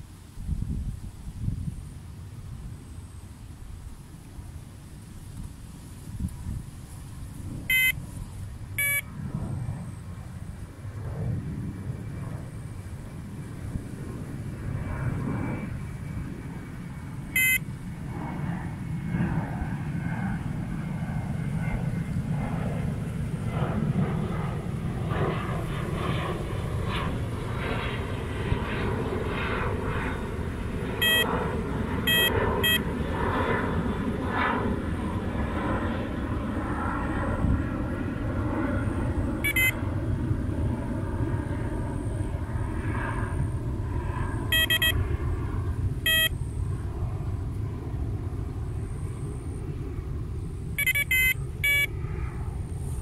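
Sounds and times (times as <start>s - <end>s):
bite alarm short beeps: 7.7s - 8.0s, 8.8s - 9.0s, 17.4s - 17.6s, 31.0s - 31.3s, 32.1s - 32.9s, 39.4s - 39.8s, 44.5s - 45.0s, 46.1s - 46.4s, 50.8s - 51.9s.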